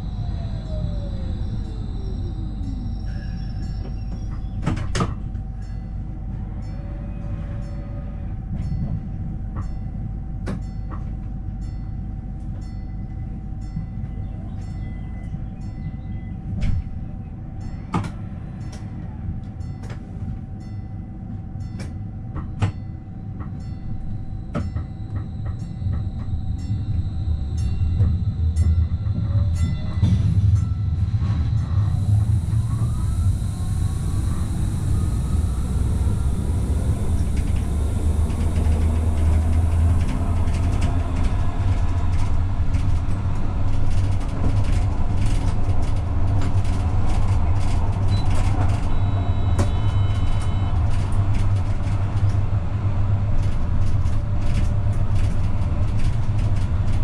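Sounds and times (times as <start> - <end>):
low running rumble: 0.0 - 6.6, 23.1 - 57.0
tram motor whine: 0.0 - 57.0
wheels clicking over track: 32.0 - 52.4.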